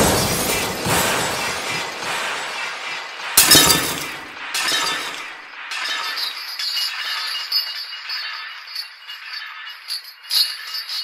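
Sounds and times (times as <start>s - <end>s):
harsh noise crashes: 0.0s - 6.0s.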